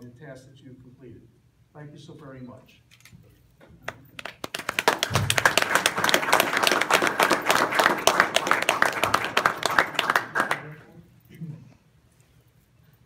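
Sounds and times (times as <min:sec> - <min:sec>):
sharp loud claps close by: 0:03.9 - 0:10.7
audience applauding: 0:04.2 - 0:10.8.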